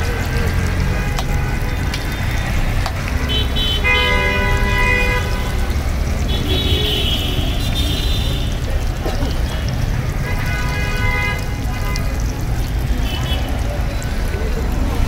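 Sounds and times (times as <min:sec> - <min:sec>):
low traffic rumble: 0:00.0 - 0:15.0
vehicle horn: 0:03.2 - 0:05.6, 0:06.3 - 0:08.5.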